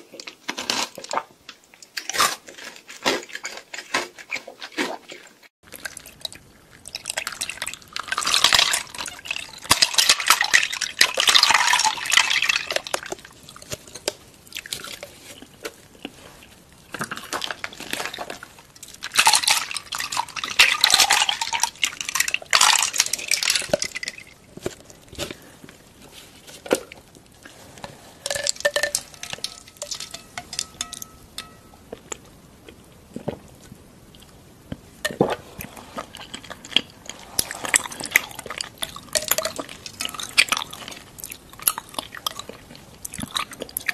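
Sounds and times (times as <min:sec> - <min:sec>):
small glass clinks: 0:28.3 - 0:31.8
liquid dripping: 0:28.3 - 0:32.1.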